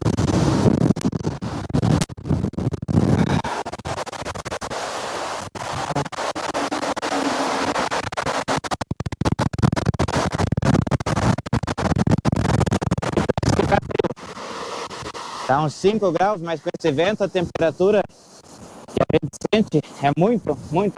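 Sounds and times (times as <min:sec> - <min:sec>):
strong wind rumble: 0:00.0 - 0:04.0
wind crackling on microphone: 0:00.0 - 0:06.3, 0:08.8 - 0:16.3.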